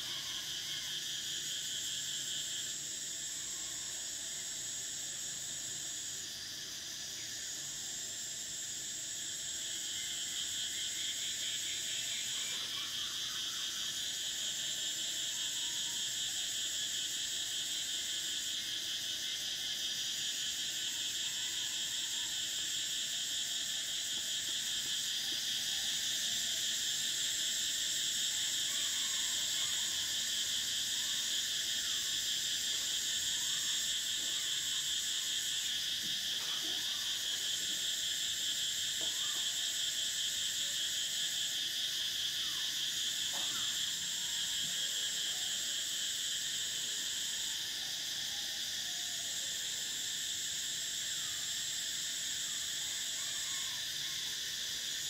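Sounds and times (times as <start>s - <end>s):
cicadas singing: 0.0s - 55.0s.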